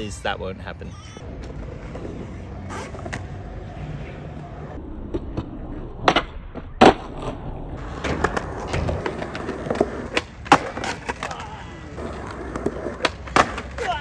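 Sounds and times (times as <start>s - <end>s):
skateboard wheels rolling on concrete: 1.2s - 14.0s
skateboard clacks: 7.9s - 14.0s.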